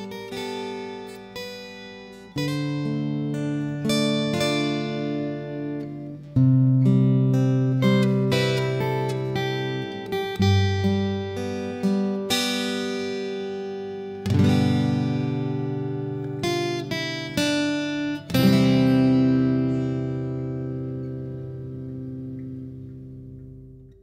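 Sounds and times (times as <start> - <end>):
acoustic guitar picking and strumming: 0.0 - 24.0.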